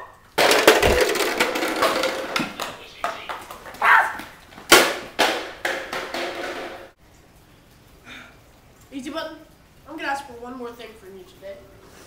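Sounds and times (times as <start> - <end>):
knocks and thumps: 0.4 - 7.0.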